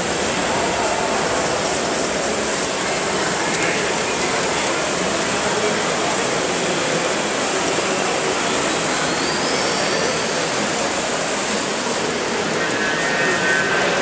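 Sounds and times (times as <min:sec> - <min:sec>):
steam hissing: 0:00.0 - 0:14.0.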